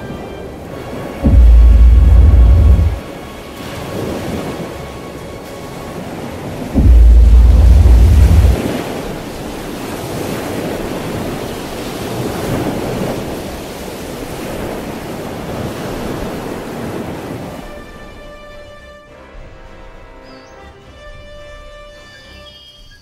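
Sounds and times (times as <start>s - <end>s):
sustained music notes: 0.0s - 8.6s
wind and surf rushing: 0.0s - 18.8s
deep boom: 1.2s - 3.0s, 6.8s - 8.6s.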